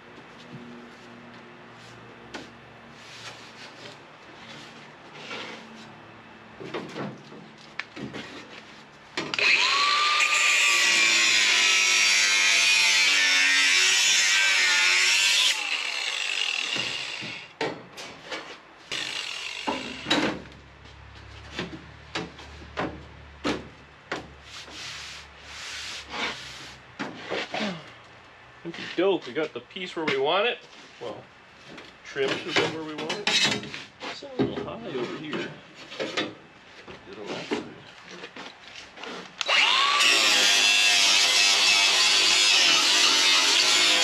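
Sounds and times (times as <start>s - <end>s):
angle grinder cutting sheet metal: 9.4s - 17.5s, 18.9s - 20.1s, 39.4s - 44.0s.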